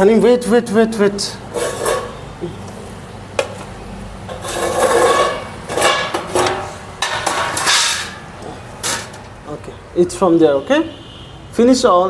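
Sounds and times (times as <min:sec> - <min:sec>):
steel dish scraping on tile: 0:01.5 - 0:02.2, 0:04.3 - 0:08.2
steel dishes knocking: 0:04.3 - 0:08.2.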